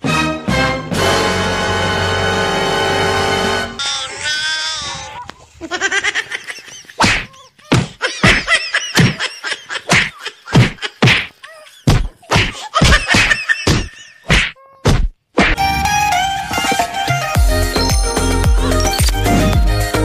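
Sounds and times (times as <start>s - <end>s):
punch and slap thuds: 9.9s - 11.3s, 11.9s - 15.6s.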